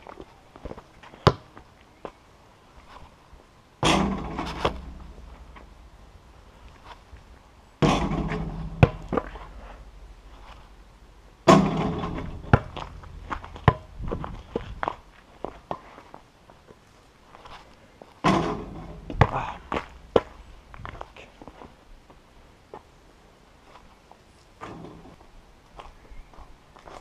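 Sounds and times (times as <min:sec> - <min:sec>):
ball bouncing on ground: 0:00.7 - 0:01.6, 0:03.8 - 0:05.8, 0:07.8 - 0:09.6, 0:11.4 - 0:15.8, 0:18.2 - 0:21.0
basketball hitting backboard and rim: 0:03.8 - 0:06.6, 0:07.8 - 0:14.9, 0:18.2 - 0:20.7.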